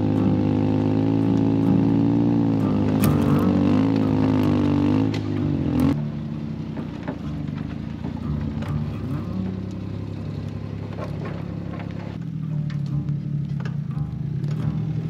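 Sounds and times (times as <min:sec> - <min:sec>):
small truck engine pulling: 0:00.0 - 0:15.0
stones and load clattering: 0:10.4 - 0:14.7.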